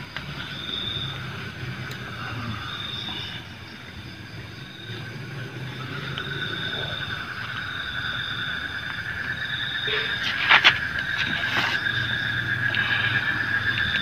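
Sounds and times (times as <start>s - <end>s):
night insects chirring: 0.0s - 14.0s.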